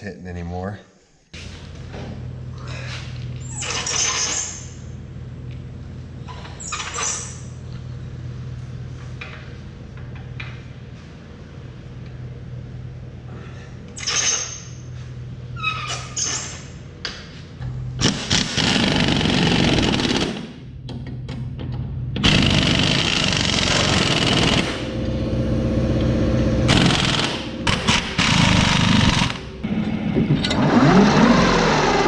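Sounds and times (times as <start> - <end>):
engine idling: 21.8 - 30.2
noisy bursts: 22.2 - 32.0.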